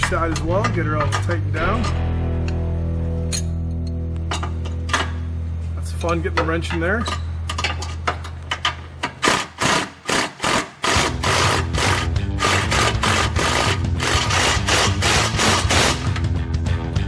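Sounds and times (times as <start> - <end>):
impact driver tightening nut: 9.2 - 16.1.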